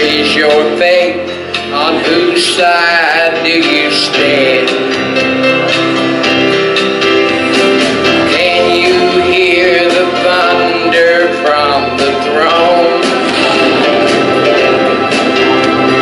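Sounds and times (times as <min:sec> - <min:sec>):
man singing a hymn: 0:00.0 - 0:05.0, 0:08.2 - 0:13.5
instrumental accompaniment: 0:00.0 - 0:16.0.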